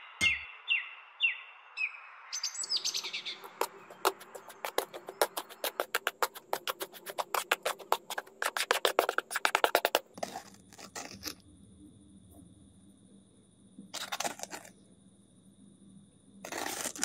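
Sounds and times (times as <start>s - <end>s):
trowel tapping against board: 3.5s - 10.4s
trowel scraping through cement: 3.7s - 11.4s, 14.0s - 14.7s, 16.4s - 17.0s.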